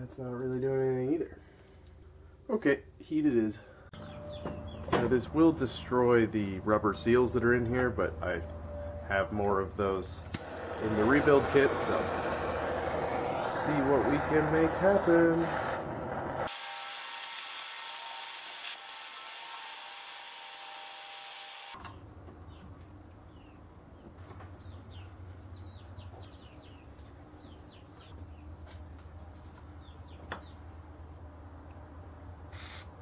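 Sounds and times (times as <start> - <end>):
faint bird chirps: 4.0 - 4.9
gas torch flame hissing: 10.4 - 16.6.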